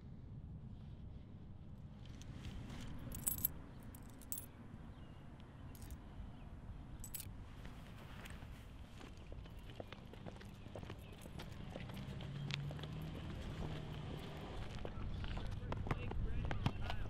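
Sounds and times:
coins clinking: 3.1 - 4.5, 7.0 - 7.3.

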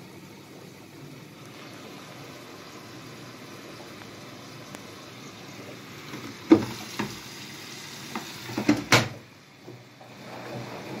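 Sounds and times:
knocks on washing machine top: 8.6 - 9.2.

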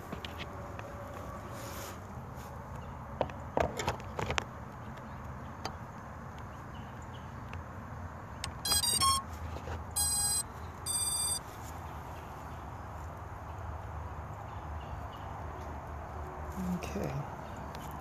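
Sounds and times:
short electronic beeps: 8.6 - 9.2, 10.0 - 11.4.

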